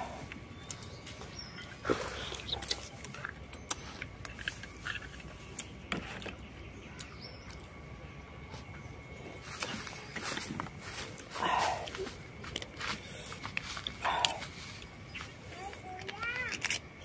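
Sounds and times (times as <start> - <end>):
chewing and lip-smacking: 1.6 - 5.8, 11.2 - 14.9.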